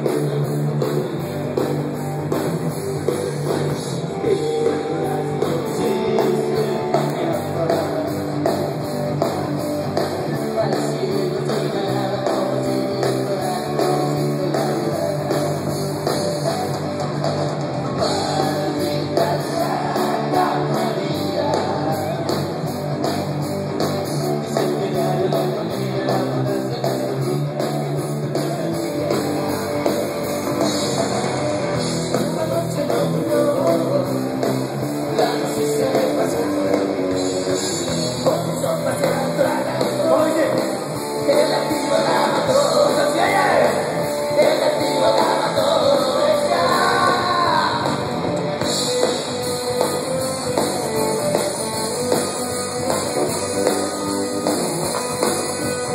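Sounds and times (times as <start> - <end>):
rock band playing: 0.0 - 55.9
person singing: 3.3 - 8.7, 10.0 - 16.8, 18.0 - 22.6, 24.4 - 29.9, 30.8 - 48.1.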